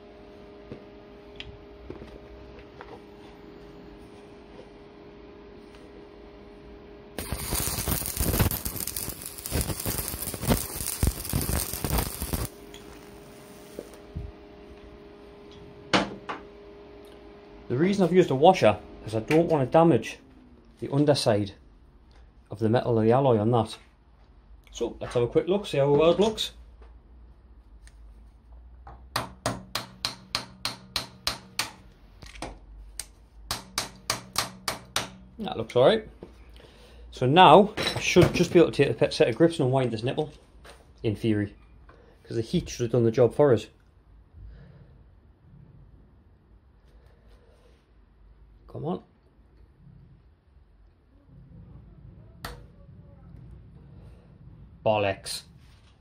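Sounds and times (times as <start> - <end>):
arc welder crackling: 7.1 - 15.6.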